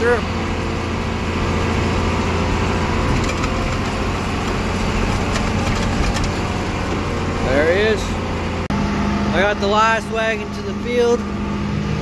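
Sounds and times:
tractor engine running: 0.0 - 12.0
light rattles: 3.0 - 7.2.

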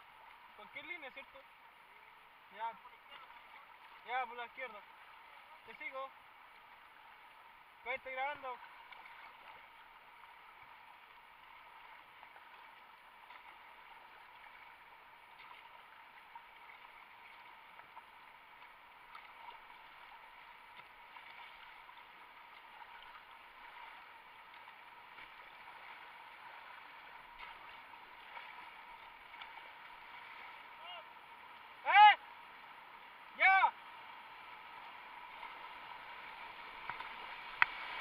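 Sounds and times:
river water rushing: 0.0 - 38.0.

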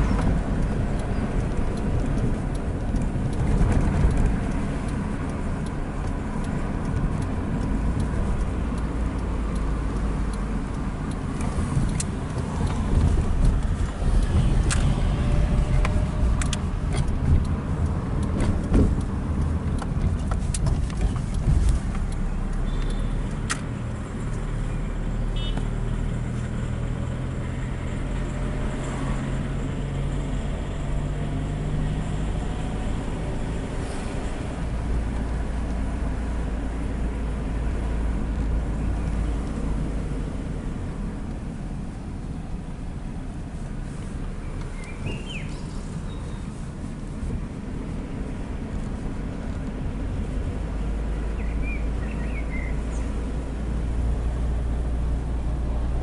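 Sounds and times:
car engine rumble from inside: 0.0 - 56.0
tyres rumbling on road: 0.0 - 56.0.

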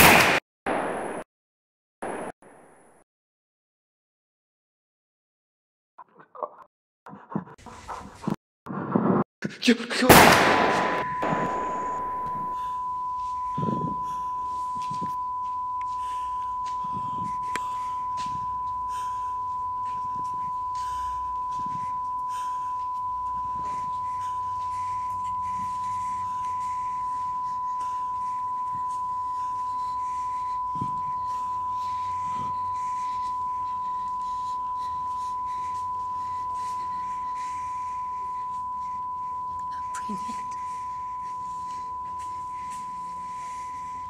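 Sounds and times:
high-pitched electronic tone: 10.4 - 44.0.

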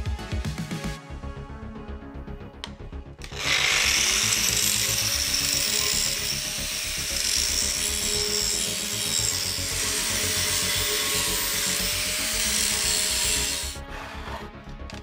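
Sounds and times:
angle grinder grinding metal: 3.2 - 14.6.

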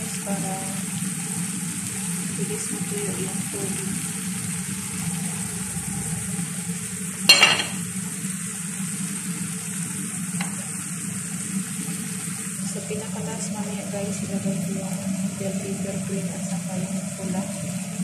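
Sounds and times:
food sizzling in a frying pan: 0.0 - 18.0
wooden spoon knocking on pan: 7.3 - 7.8.

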